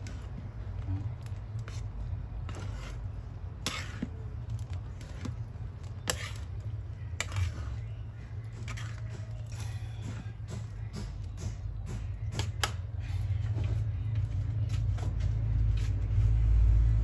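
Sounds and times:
wooden spoon scraping metal pan: 0:00.0 - 0:11.3
syrup boiling: 0:00.0 - 0:11.4.

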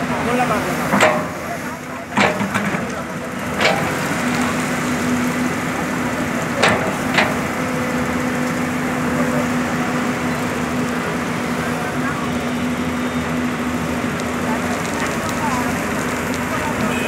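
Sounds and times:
excavator diesel engines running: 0:00.0 - 0:17.0.

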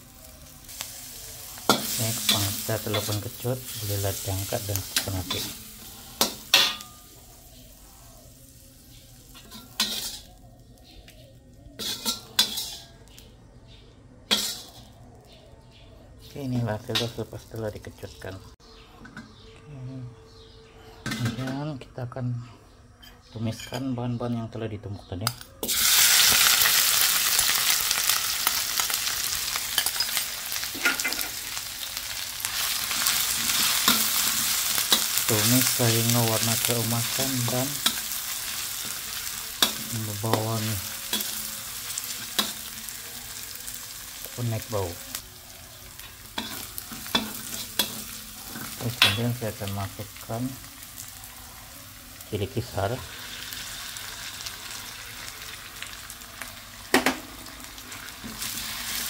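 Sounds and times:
faint sizzling: 0:00.0 - 0:19.3, 0:25.3 - 0:59.0
metal spatula scraping a wok: 0:09.2 - 0:10.4, 0:11.8 - 0:13.0, 0:14.3 - 0:15.0, 0:46.0 - 0:49.2
metal spatula scraping and stirring: 0:09.4 - 0:10.4, 0:11.8 - 0:13.0, 0:14.3 - 0:15.0.

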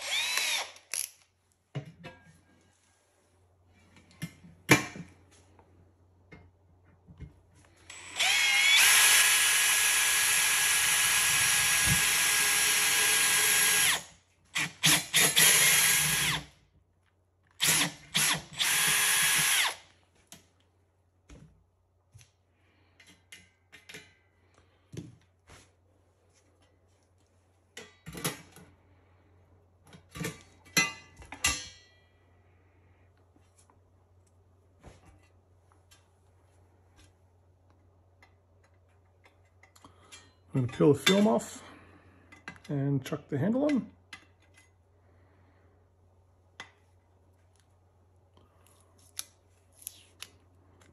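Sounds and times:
cordless drill drilling metal: 0:00.0 - 0:01.1, 0:07.9 - 0:16.5, 0:17.6 - 0:19.9
clicks of parts handled: 0:00.8 - 0:01.4.

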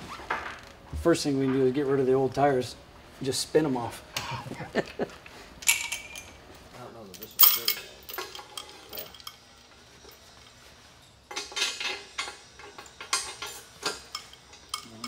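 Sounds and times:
chain clanking on steel bar: 0:07.1 - 0:10.6, 0:11.3 - 0:15.0.

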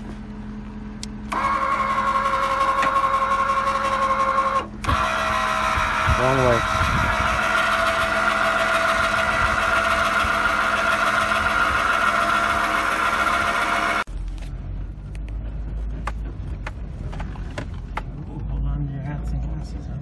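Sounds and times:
vehicle cab driving rumble: 0:00.0 - 0:07.6, 0:11.3 - 0:20.0
electric motor whining: 0:01.3 - 0:14.1.

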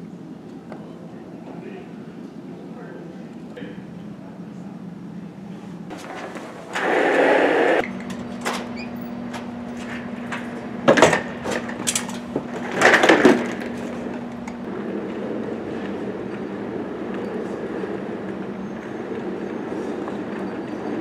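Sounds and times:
steady low hum: 0:00.0 - 0:21.0
chair casters rolling on hard floor: 0:05.9 - 0:21.0.

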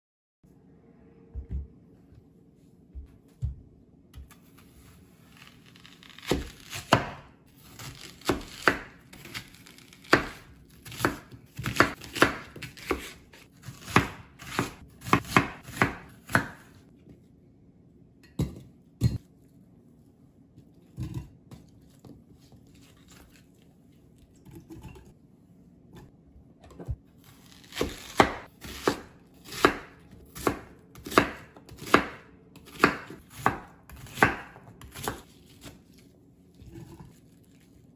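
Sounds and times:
knife chopping on cutting board: 0:06.2 - 0:16.8, 0:27.7 - 0:35.8.

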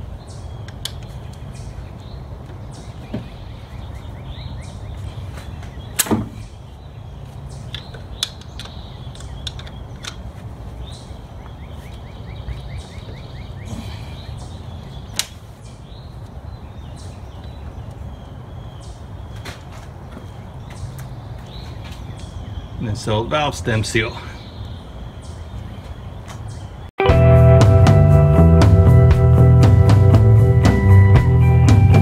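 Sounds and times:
low rumble: 0:27.1 - 0:32.0.

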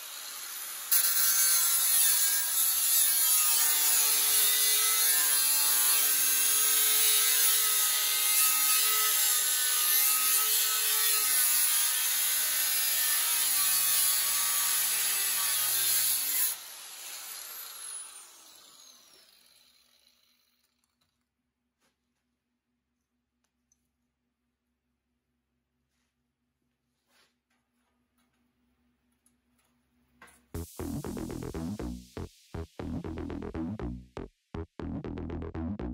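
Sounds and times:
angle grinder cutting steel: 0:00.0 - 0:20.9.

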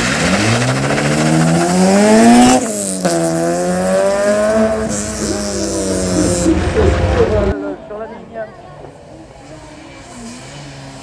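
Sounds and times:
race car engine revving: 0:00.0 - 0:07.6.

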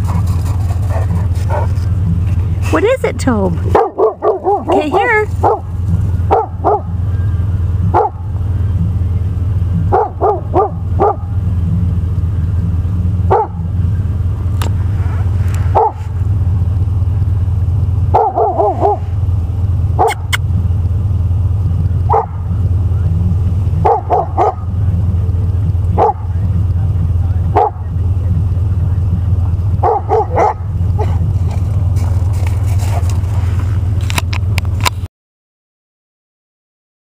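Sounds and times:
low rumble: 0:00.0 - 0:35.1
dog barking: 0:00.9 - 0:01.8, 0:03.6 - 0:07.0, 0:07.9 - 0:08.4, 0:09.9 - 0:11.4, 0:13.3 - 0:13.7, 0:15.7 - 0:16.2, 0:18.1 - 0:19.2, 0:20.0 - 0:20.4, 0:22.1 - 0:22.5, 0:23.8 - 0:24.8, 0:25.9 - 0:26.4, 0:27.5 - 0:27.9, 0:29.8 - 0:31.4.

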